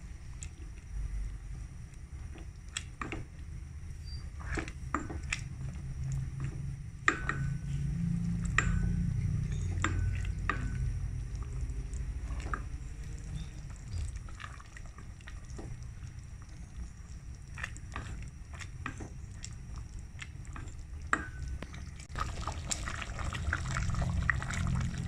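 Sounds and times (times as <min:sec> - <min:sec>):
soup sloshing in pot: 0:09.8 - 0:25.0.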